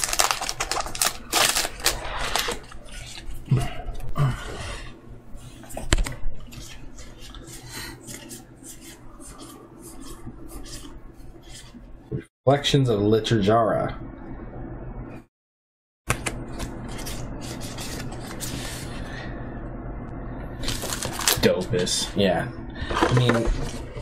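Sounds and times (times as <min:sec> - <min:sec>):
cards and wrappers rustling: 0:00.0 - 0:03.4, 0:16.2 - 0:19.0, 0:20.6 - 0:21.5.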